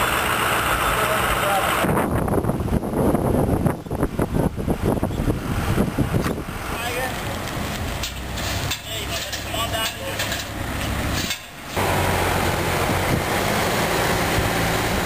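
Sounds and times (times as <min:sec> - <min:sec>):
distant voices: 0:00.0 - 0:01.9, 0:06.0 - 0:15.0
wind on microphone: 0:01.8 - 0:08.0, 0:12.5 - 0:15.0.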